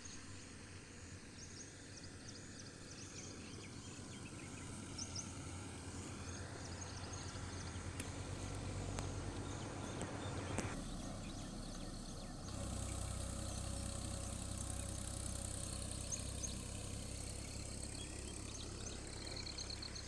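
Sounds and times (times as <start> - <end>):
small birds chirping: 0.0 - 20.0.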